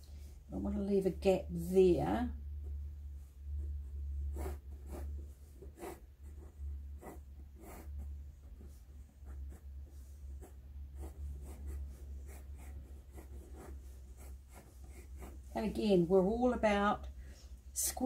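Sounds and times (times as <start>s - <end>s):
steady low hum: 0.0s - 18.0s
pencil scratching on paper: 2.6s - 16.3s.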